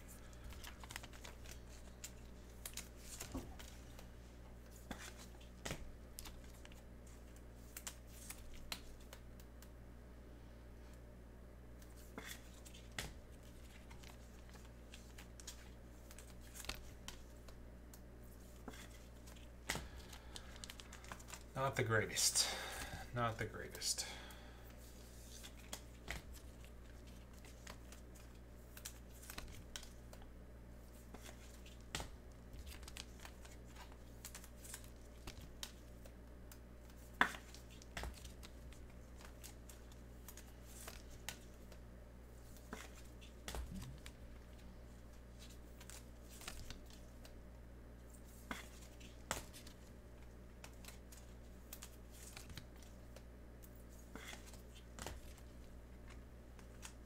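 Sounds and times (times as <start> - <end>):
low steady hum: 0.0 - 57.0
trading cards and wrappers rustling: 0.1 - 9.2, 11.8 - 24.1, 30.8 - 47.4.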